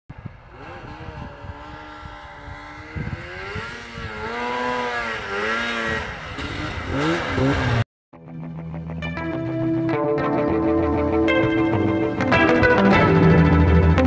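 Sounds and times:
snowmobile engine revving: 0:00.1 - 0:07.8.

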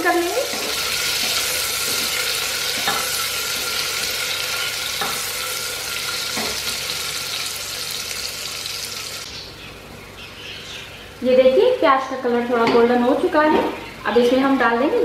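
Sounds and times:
onions sizzling in hot oil: 0:00.0 - 0:09.3.

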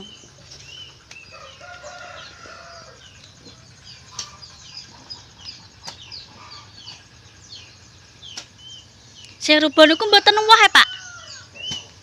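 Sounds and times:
chickens clucking: 0:00.0 - 0:12.0
small birds chirping: 0:00.0 - 0:12.0.

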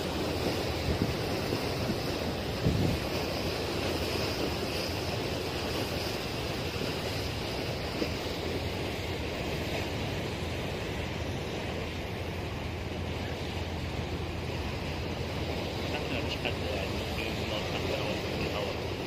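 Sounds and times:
wind on microphone: 0:00.0 - 0:08.2
low engine drone: 0:00.0 - 0:19.0
water rushing past boat hull: 0:00.0 - 0:19.0.

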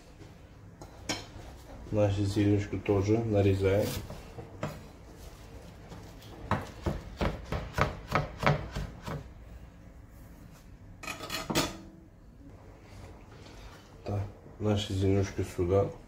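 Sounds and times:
knife chopping on wooden board: 0:06.5 - 0:09.3.

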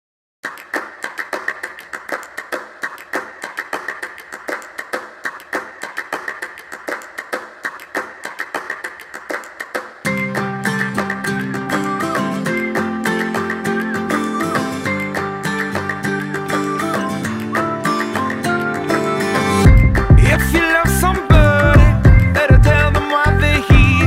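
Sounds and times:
strummed acoustic guitar music: 0:10.0 - 0:24.0.

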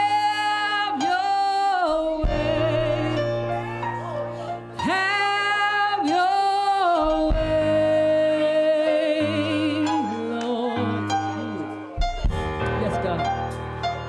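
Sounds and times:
woman singing with vibrato: 0:00.0 - 0:12.0
sustained keyboard chords: 0:00.0 - 0:14.0.

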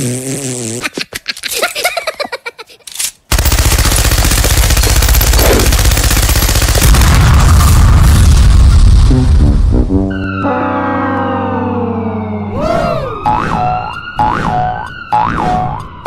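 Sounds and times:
machine-gun firing: 0:03.3 - 0:07.8
deep explosion rumble: 0:06.8 - 0:09.9.

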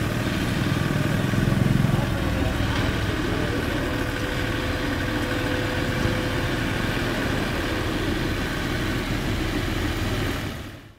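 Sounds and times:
tractor diesel engine under load: 0:00.0 - 0:10.9.

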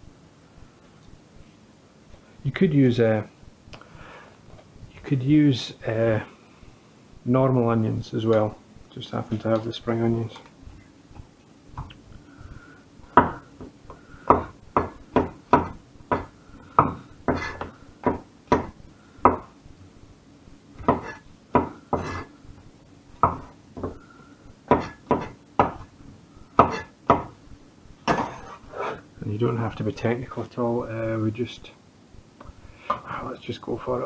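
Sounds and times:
cleaver knocking on wooden board: 0:14.3 - 0:18.7.

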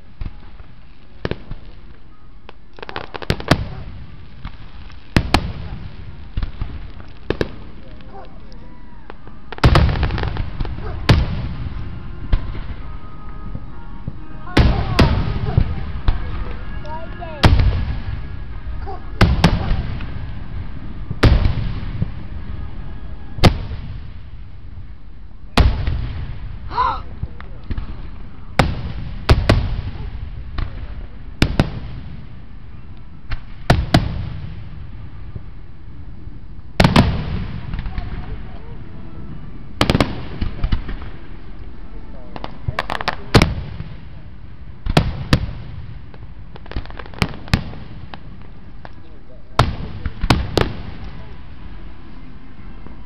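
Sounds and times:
fireworks crackling pops: 0:00.0 - 0:38.8, 0:39.7 - 0:53.0
fireworks bangs: 0:00.0 - 0:53.0
low rumbling echo: 0:00.0 - 0:53.0.

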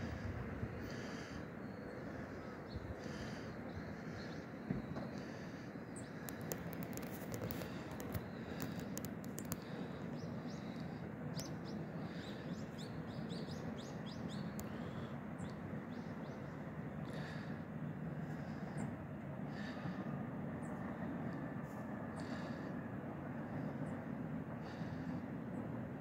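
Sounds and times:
small birds chirping: 0:00.8 - 0:17.6
electric train rumbling past: 0:09.8 - 0:26.0.

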